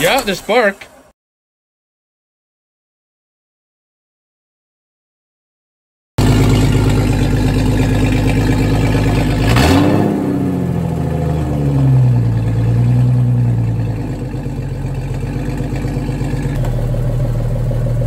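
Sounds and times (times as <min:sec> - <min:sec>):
car engine revving: 0:06.2 - 0:18.0.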